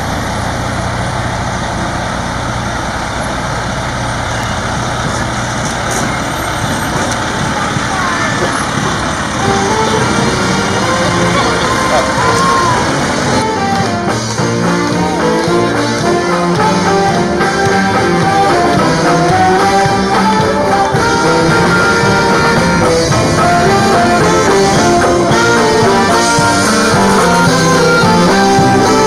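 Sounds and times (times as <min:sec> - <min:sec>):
strummed banjos: 0:05.0 - 0:29.0
saxophones playing melody: 0:09.2 - 0:29.0.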